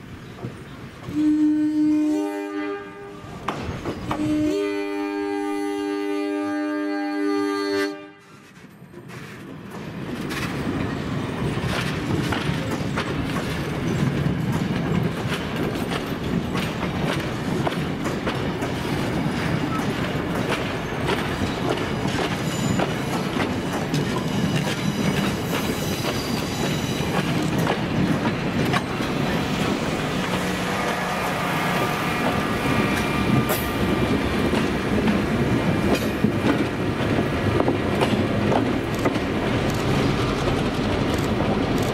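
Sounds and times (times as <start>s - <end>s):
diesel locomotive engine hum: 0.0s - 41.9s
train wheels rumbling: 8.2s - 41.9s
wheels clicking over rail joints: 8.4s - 29.3s.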